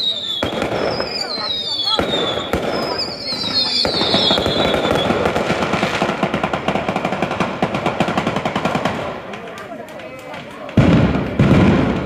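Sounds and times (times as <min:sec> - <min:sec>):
firework whistles falling in pitch: 0:00.0 - 0:05.4
firecracker bangs: 0:00.0 - 0:09.5, 0:10.6 - 0:12.0.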